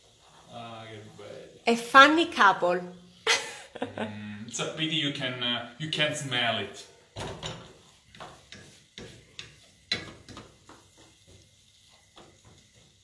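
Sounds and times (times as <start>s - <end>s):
wooden spoon scraping a pan: 0.0s - 1.9s, 6.8s - 13.0s
low sizzle: 0.0s - 13.0s.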